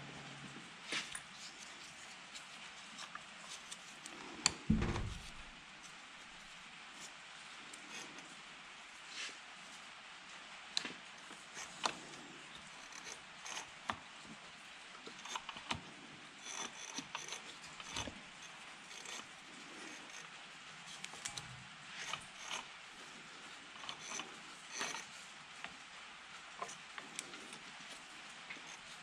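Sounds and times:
small metal clicks and rattles: 11.6s - 14.1s, 23.8s - 25.8s.

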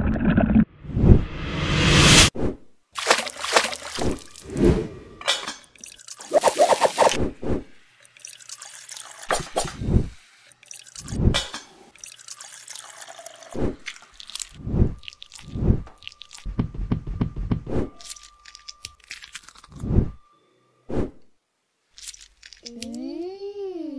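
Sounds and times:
wet plops and drips of food: 3.0s - 4.4s, 11.9s - 16.5s.

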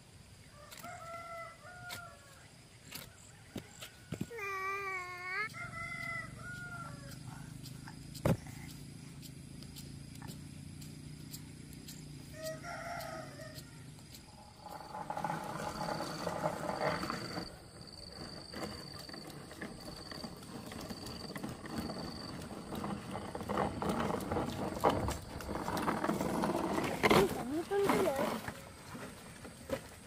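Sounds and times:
rooster crowing: 0.5s - 2.5s, 5.4s - 7.3s, 12.3s - 14.0s
mixed farmyard sound: 0.6s - 30.0s.

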